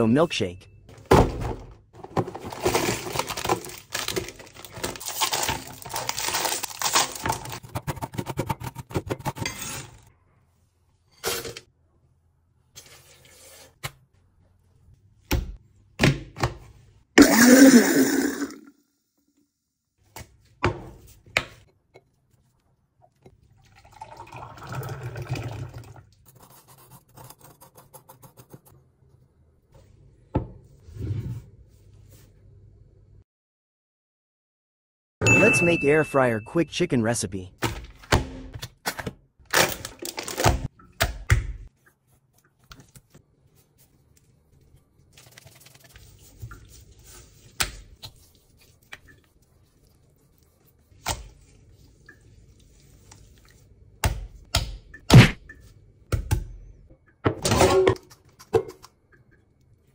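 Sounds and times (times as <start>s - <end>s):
dense crackling and crunching: 2.0s - 7.6s.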